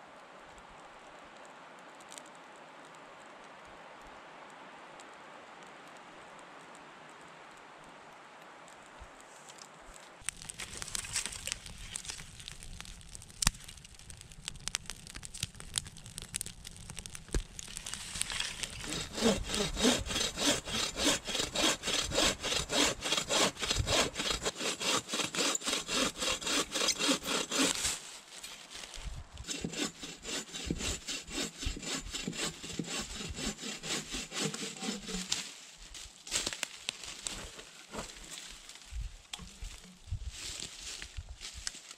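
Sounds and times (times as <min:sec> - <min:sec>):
bow saw cutting through log: 0:17.8 - 0:28.0, 0:29.4 - 0:35.5, 0:37.2 - 0:38.2.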